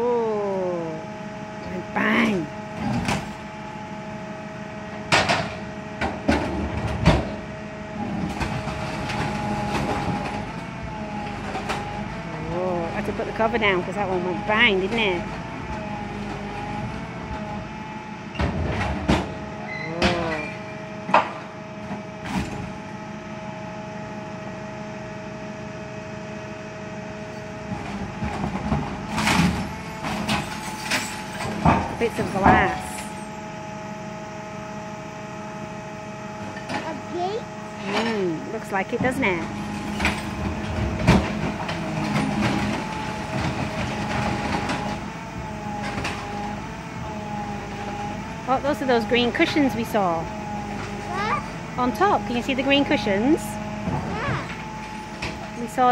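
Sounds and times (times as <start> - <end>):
garbage truck compactor whine: 0.0 - 55.9
junk crunching and clattering: 39.0 - 47.1.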